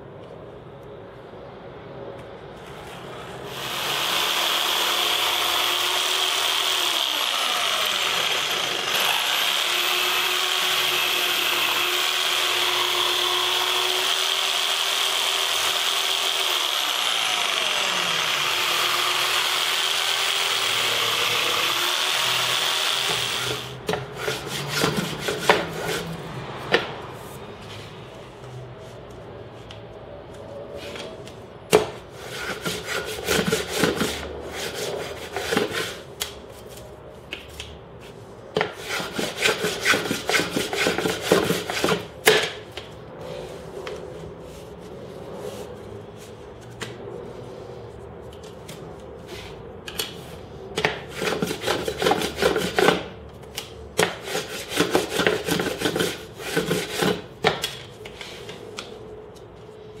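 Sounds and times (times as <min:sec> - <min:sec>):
hand plane scraping wood: 0:23.9 - 0:26.2, 0:32.2 - 0:36.0, 0:38.7 - 0:42.0, 0:51.1 - 0:53.0, 0:54.0 - 0:57.2.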